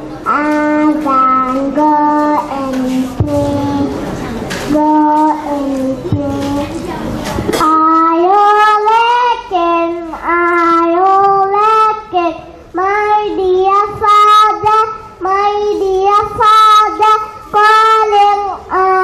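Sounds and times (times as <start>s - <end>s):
girl singing: 0.3s - 4.0s, 4.7s - 6.8s, 7.5s - 19.0s.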